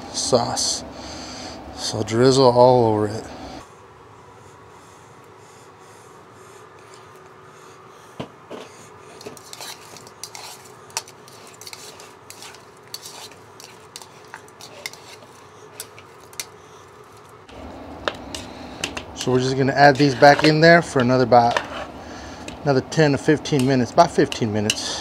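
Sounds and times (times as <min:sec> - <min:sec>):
faint steady hum: 0:00.0 - 0:25.0
tongs clacking against bowl: 0:09.2 - 0:16.6, 0:18.0 - 0:21.7, 0:23.4 - 0:25.0.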